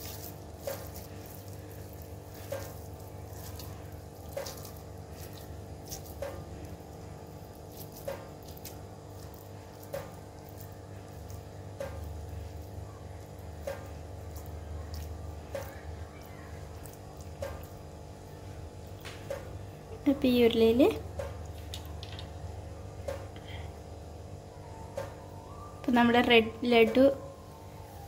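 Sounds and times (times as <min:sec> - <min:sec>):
hands squishing sticky dough: 0:00.0 - 0:28.0.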